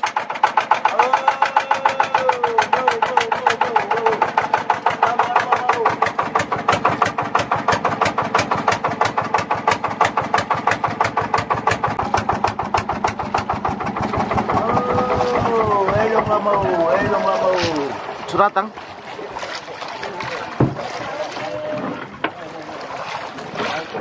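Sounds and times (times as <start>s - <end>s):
motorboat engine idling: 0.0s - 24.0s.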